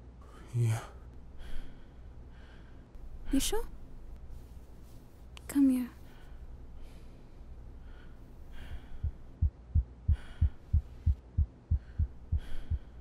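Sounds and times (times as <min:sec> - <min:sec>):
steady low hum: 0:00.0 - 0:13.0
heartbeat thumps: 0:08.6 - 0:13.0.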